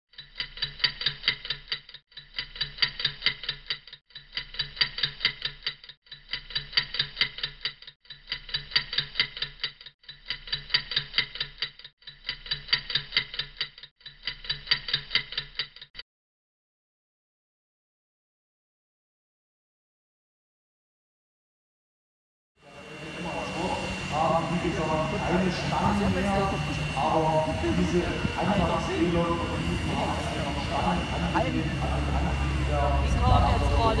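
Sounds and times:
rapid regular clicks: 0.1s - 16.0s
steady low hum: 22.6s - 34.0s.

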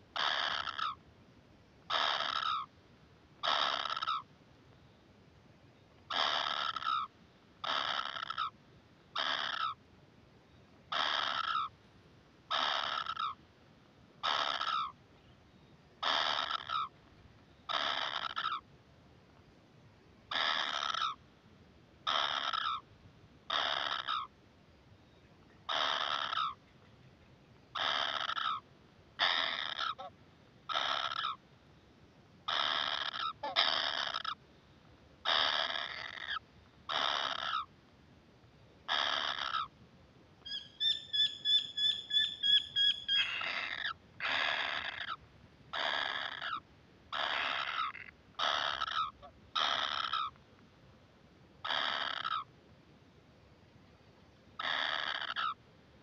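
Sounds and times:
nestlings harsh begging calls: 0.2s - 1.0s, 1.9s - 2.7s, 3.4s - 4.2s, 6.1s - 8.5s, 9.2s - 9.8s, 10.9s - 11.7s, 12.5s - 13.4s, 14.2s - 15.0s, 16.0s - 16.9s, 17.7s - 18.6s, 20.3s - 21.2s, 22.1s - 22.8s, 23.5s - 24.3s, 25.7s - 26.6s, 27.8s - 28.6s, 29.2s - 30.1s, 30.7s - 31.4s, 32.5s - 34.4s, 35.2s - 37.7s, 38.9s - 39.7s, 40.5s - 45.2s, 45.8s - 50.3s, 51.6s - 52.5s, 54.6s - 55.6s.

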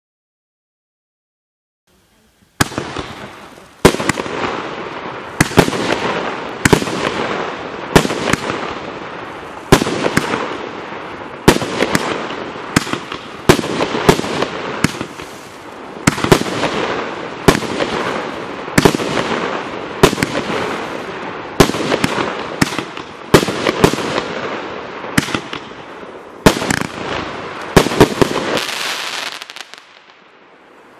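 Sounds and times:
firework reports: 1.9s - 30.9s
firework crackling: 2.0s - 30.9s.

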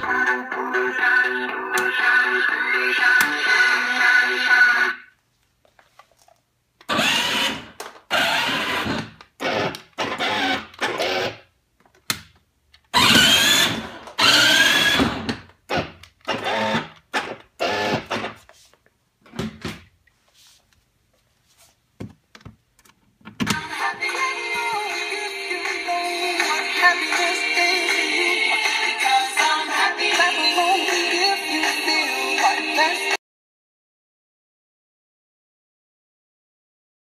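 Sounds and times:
electric motors whirring: 6.9s - 11.4s.

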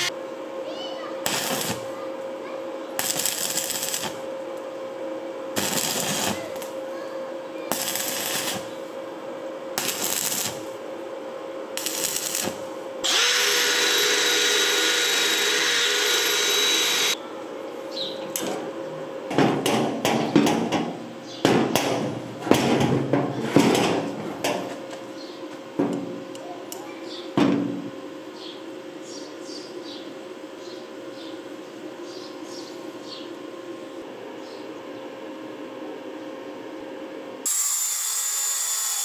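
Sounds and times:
steady hum: 0.0s - 37.5s
welding arc crackling: 1.2s - 2.0s, 3.0s - 4.3s, 5.5s - 6.8s, 7.7s - 8.8s, 9.8s - 10.8s, 11.8s - 17.2s
cutting disc whine: 11.9s - 17.2s.

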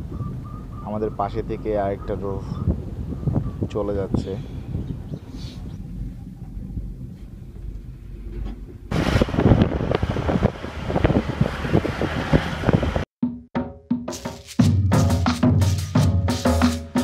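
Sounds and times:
ropeway cabin rumble: 0.0s - 13.1s
wind on microphone: 0.0s - 13.1s.

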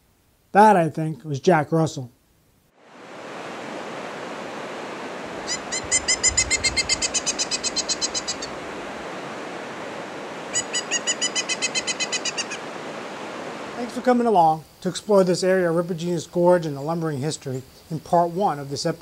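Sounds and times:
white-water rapids rushing: 2.9s - 14.2s
bird calling in rapid notes: 5.4s - 8.6s, 10.5s - 12.6s.

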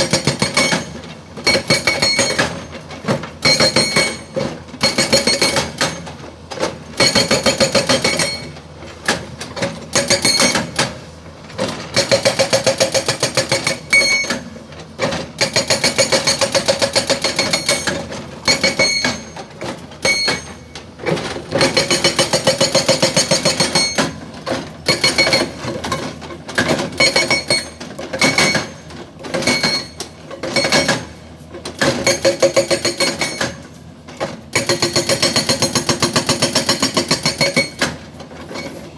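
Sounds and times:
rock breaker hammering rock: 0.0s - 6.1s, 7.0s - 11.0s, 11.6s - 33.6s, 34.2s - 38.1s.

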